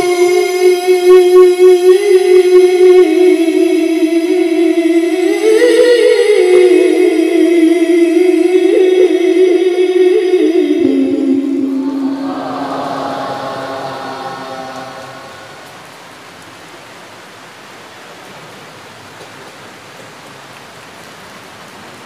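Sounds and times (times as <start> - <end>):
man reciting melodically: 0.0 - 15.8.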